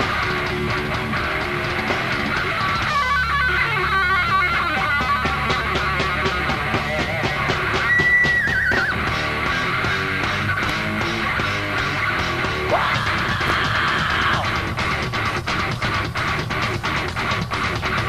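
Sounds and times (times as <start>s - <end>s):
heavy metal band playing: 0.0s - 18.0s
lead guitar fast run: 0.0s - 18.0s.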